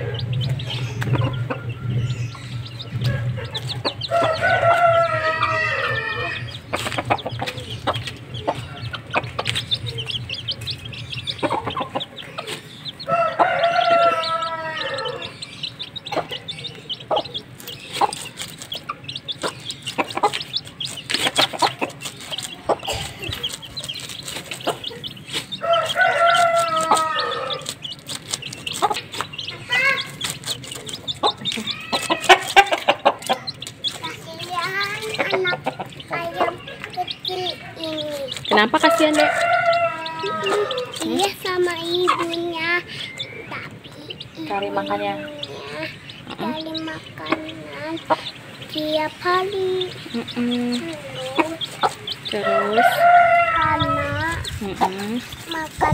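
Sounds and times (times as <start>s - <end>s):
chicks peeping: 0.0s - 55.9s
rooster crowing: 4.0s - 6.5s, 13.1s - 15.4s, 25.6s - 27.7s, 38.8s - 41.0s, 52.4s - 54.3s.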